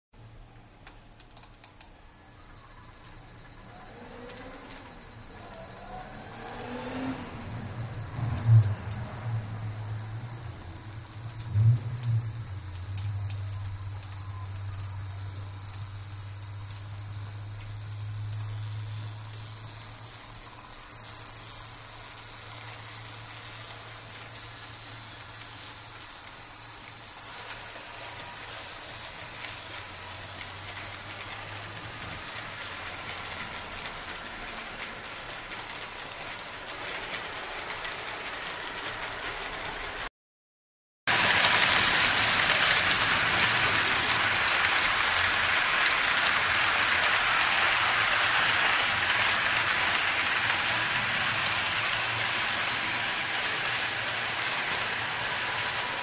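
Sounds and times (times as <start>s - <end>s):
low hum: 2.4s - 25.1s
model train wheels clattering on rails: 2.4s - 40.1s, 41.1s - 56.0s.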